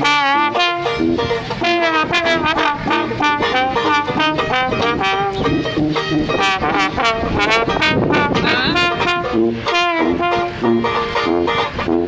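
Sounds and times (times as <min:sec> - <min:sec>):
banjo strumming: 0:00.0 - 0:12.0
trombone: 0:00.0 - 0:12.0
tuba bass: 0:00.0 - 0:12.0.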